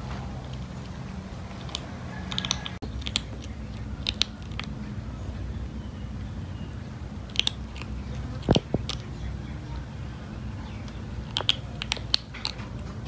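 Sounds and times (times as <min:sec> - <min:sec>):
low background hum: 0:00.0 - 0:13.0
kitten crunching dry kibble: 0:00.3 - 0:05.1, 0:07.2 - 0:09.4, 0:10.9 - 0:13.0.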